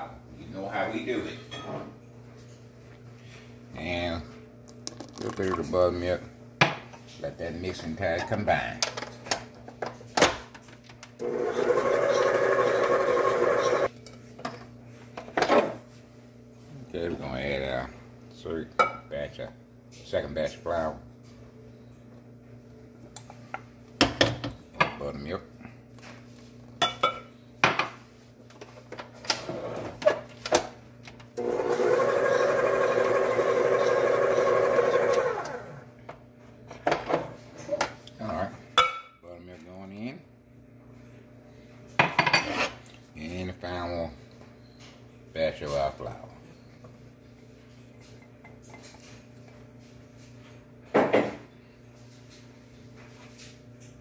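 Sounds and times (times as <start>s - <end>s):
stand mixer motor running: 11.2s - 13.9s, 31.4s - 35.9s.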